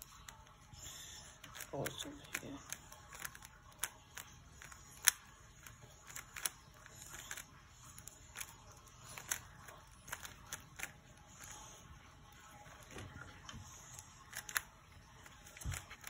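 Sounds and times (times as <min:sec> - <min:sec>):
puzzle cube clicking: 0:01.4 - 0:11.5, 0:14.3 - 0:16.0.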